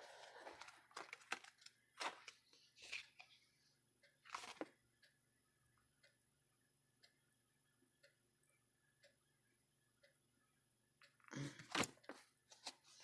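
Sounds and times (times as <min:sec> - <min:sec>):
cards rustling: 0:00.0 - 0:03.3.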